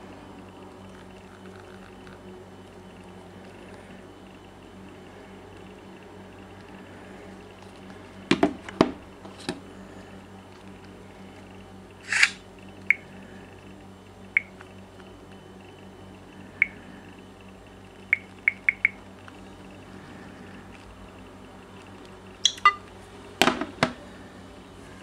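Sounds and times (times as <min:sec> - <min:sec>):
fingers tapping touchscreen: 0:18.2 - 0:19.0, 0:22.5 - 0:22.8.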